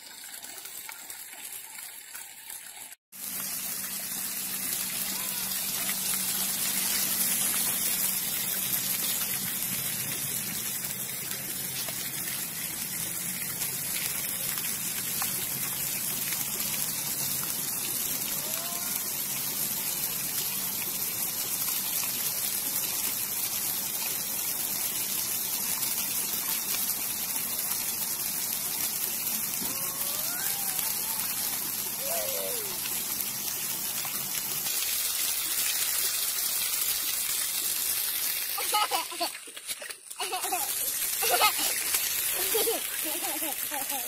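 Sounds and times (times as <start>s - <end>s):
fountain water splashing: 0.0s - 44.0s
child's faint voice: 5.0s - 5.9s, 18.2s - 19.1s, 29.6s - 32.8s.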